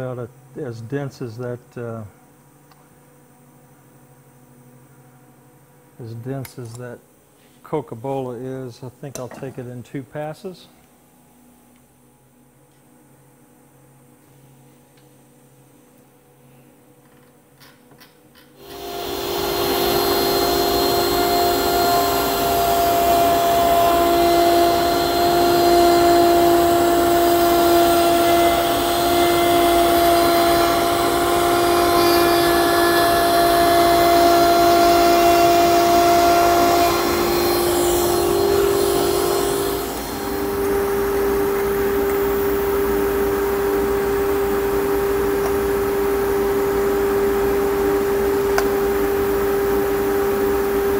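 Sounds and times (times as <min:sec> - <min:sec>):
router cutting wood: 0:18.6 - 0:50.9.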